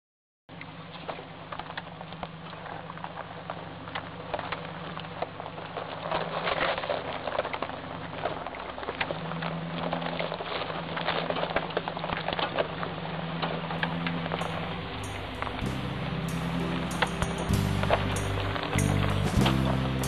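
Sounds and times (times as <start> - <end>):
gravel crackling under tyres: 0.5 - 20.0
vehicle engine running low revs: 13.6 - 20.0
vehicle rattling: 13.7 - 20.0.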